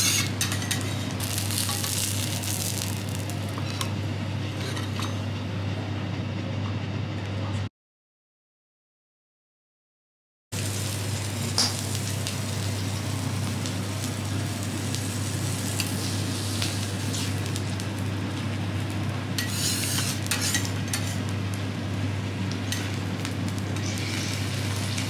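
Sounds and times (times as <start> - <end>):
food sizzling on a griddle: 0.0 - 3.8, 10.6 - 25.0.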